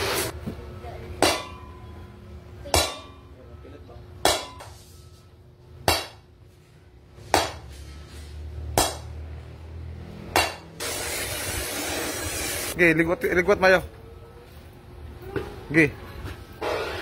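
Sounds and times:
hammer striking hot metal: 1.2 - 1.8, 2.7 - 3.2, 4.2 - 4.8, 5.8 - 6.2, 7.3 - 7.6, 8.8 - 9.1, 10.3 - 11.3.

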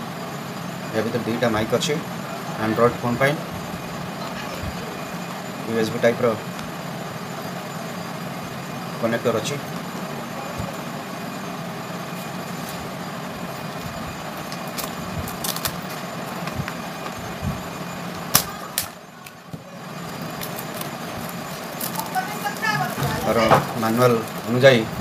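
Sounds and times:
steady background noise: 0.0 - 25.0
plastic wrap crackling: 14.4 - 16.8, 20.1 - 24.6
scissors cutting plastic: 14.5 - 16.6, 20.2 - 22.2.

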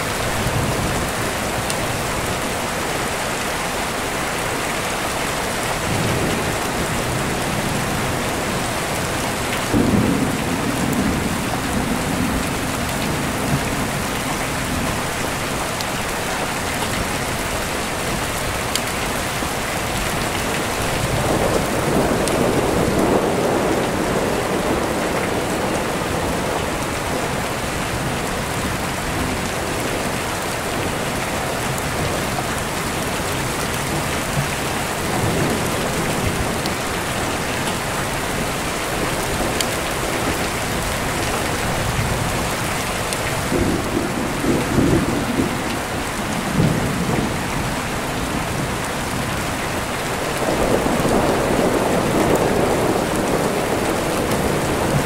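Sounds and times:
heavy rain: 0.0 - 55.0
rolling thunder: 5.9 - 15.1, 43.3 - 49.2, 50.3 - 55.0.

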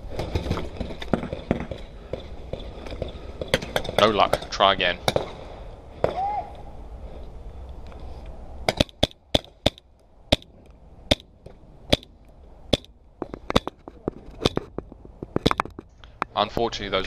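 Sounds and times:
paintball marker shots: 8.7 - 10.5, 11.1 - 12.1, 12.7 - 15.8.

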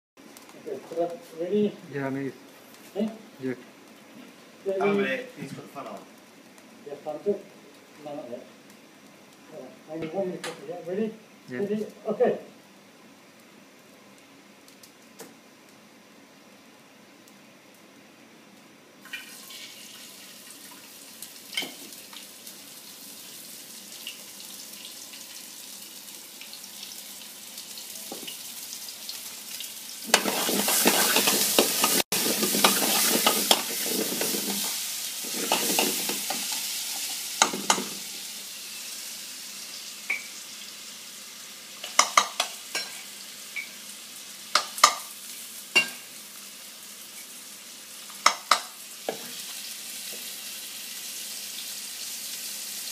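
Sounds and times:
food sizzling in frying pan: 18.4 - 52.9.

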